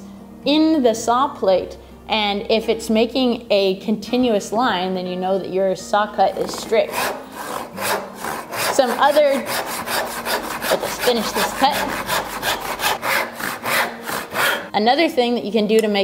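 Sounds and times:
hand saw cutting wood: 6.3s - 14.7s.

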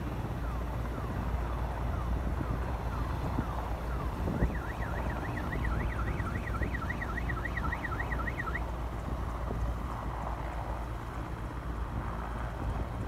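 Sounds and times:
siren yelping: 0.4s - 8.7s.

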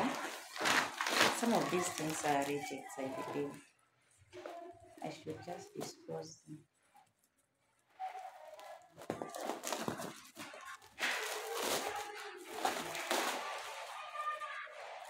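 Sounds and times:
packaging bags rustling: 0.0s - 3.6s, 6.8s - 15.0s.

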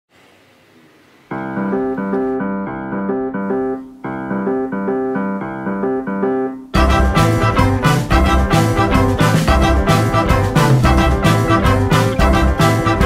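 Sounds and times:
keyboard playing held notes: 1.4s - 13.0s
swing band with beat: 6.8s - 13.0s.

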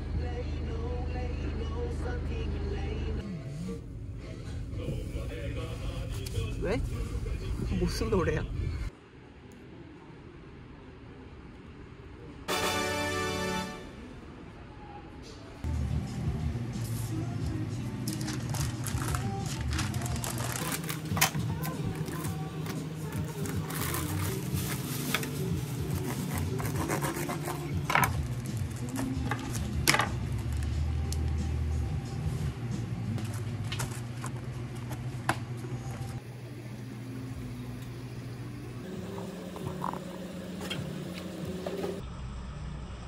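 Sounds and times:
paper wrapper rustling and crinkling: 18.0s - 29.7s.

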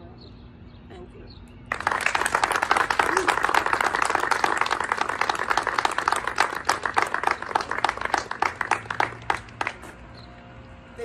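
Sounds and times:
crowd applauding: 1.7s - 9.9s.

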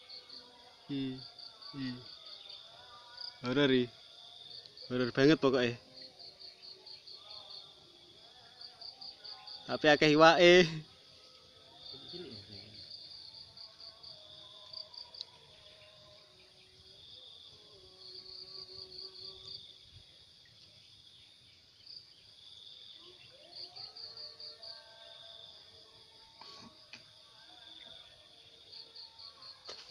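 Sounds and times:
insects buzzing: 0.0s - 29.9s
insects chirping in pulses: 0.0s - 29.9s.

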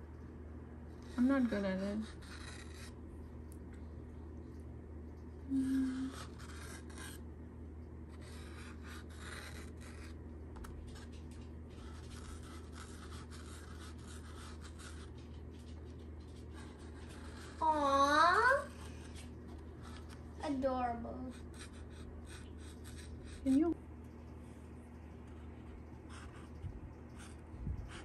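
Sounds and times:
marker scratching on paper plate: 0.9s - 3.0s, 5.6s - 7.2s, 8.1s - 23.8s, 25.2s - 28.0s.

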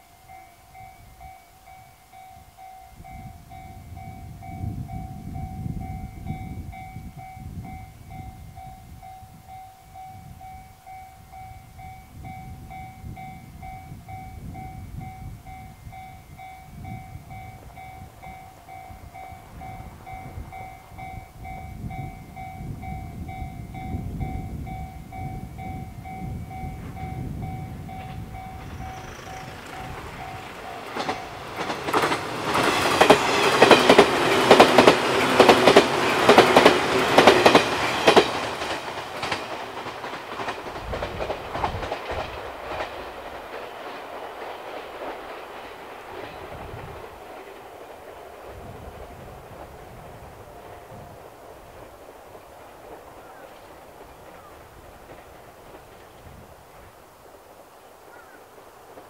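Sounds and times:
electric train approaching: 0.0s - 59.0s
low fluctuating rumble: 27.0s - 31.4s.

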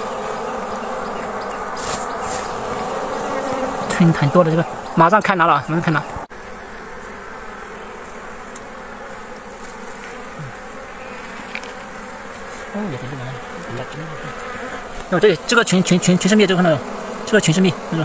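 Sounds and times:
bees buzzing: 0.0s - 18.0s
person speaking: 3.6s - 6.2s, 12.6s - 14.4s.

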